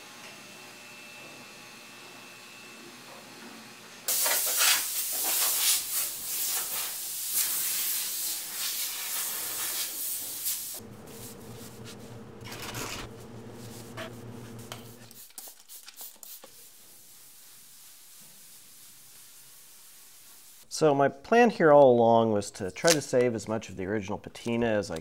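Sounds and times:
shop vacuum motor humming: 0.0s - 4.1s, 10.8s - 15.0s
hose spraying hiss: 4.1s - 11.9s, 14.7s - 20.7s.

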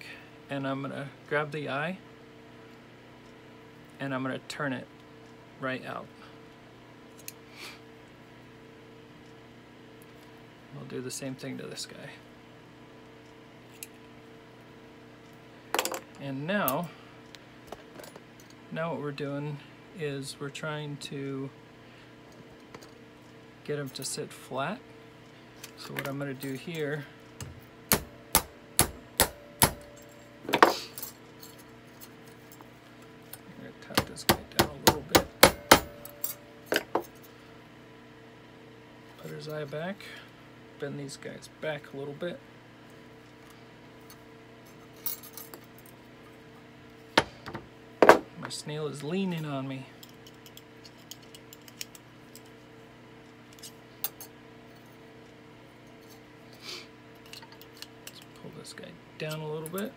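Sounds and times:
steady low hum: 0.0s - 59.9s
hammer tapping metal: 27.9s - 30.7s, 33.9s - 37.0s.

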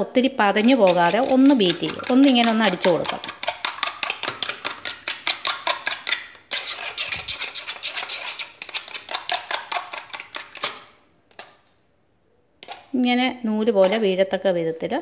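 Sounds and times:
spoon beating in plastic bowl: 0.4s - 10.9s.

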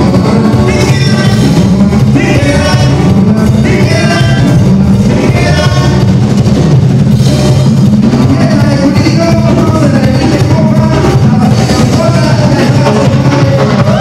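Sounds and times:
latin band music: 0.0s - 14.0s.

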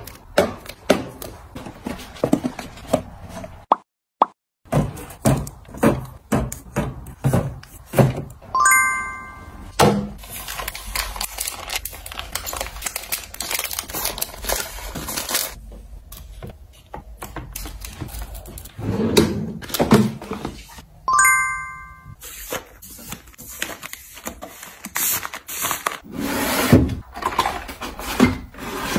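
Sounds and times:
bright chime: 8.6s - 9.7s, 21.1s - 22.2s
foil packets crinkling: 10.2s - 15.6s.

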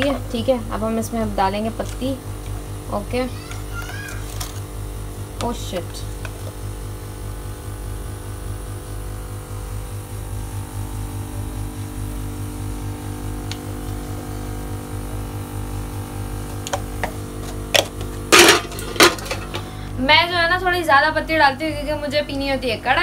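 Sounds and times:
low pulsing hum: 0.0s - 3.5s, 4.6s - 23.0s
metal pot clatter: 18.3s - 19.6s.

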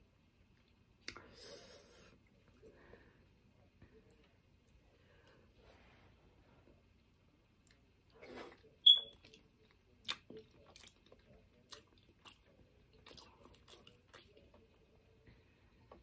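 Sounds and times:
person chewing: 7.7s - 14.8s.

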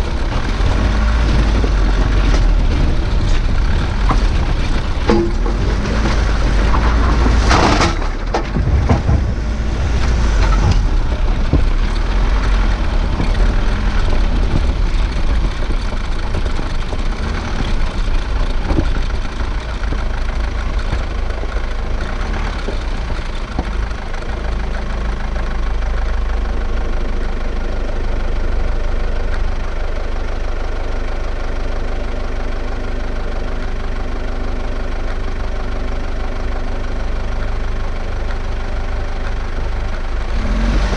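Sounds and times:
low rumble: 0.0s - 30.0s
vehicle engine idling: 0.0s - 40.9s
loud knocks: 0.9s - 21.1s.

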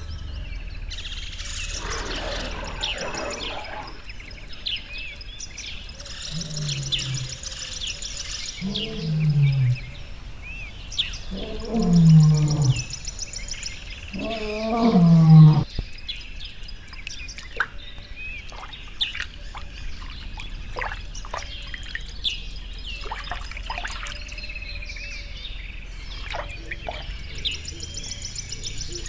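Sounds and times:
birds chirping: 0.0s - 29.0s
lion calling: 1.4s - 4.6s, 6.0s - 10.2s, 11.2s - 13.0s, 14.0s - 15.7s, 26.1s - 28.2s.

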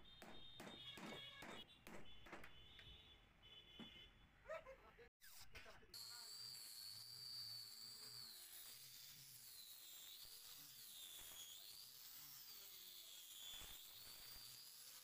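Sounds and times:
angle grinder sanding wood: 6.0s - 15.0s.

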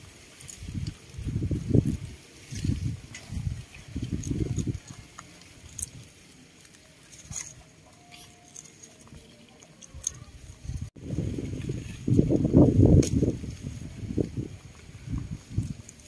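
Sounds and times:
animals chewing leafy greens: 0.0s - 16.0s.

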